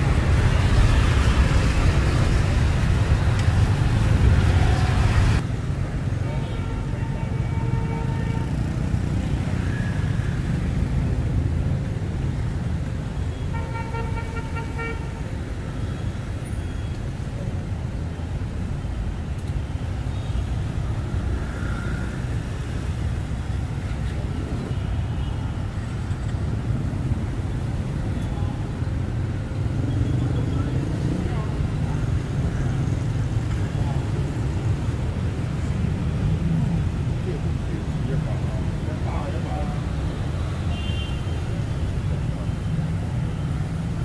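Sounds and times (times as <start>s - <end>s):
rumble of passing vehicles: 0.0s - 44.0s
vehicle horn: 13.3s - 15.2s, 40.7s - 41.4s.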